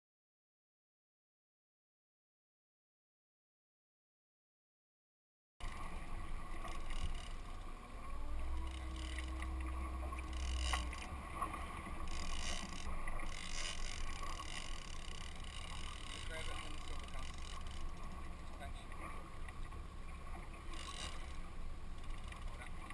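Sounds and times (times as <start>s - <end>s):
boat engine running: 5.6s - 22.9s
water noise: 5.6s - 22.9s
wind: 5.6s - 22.9s.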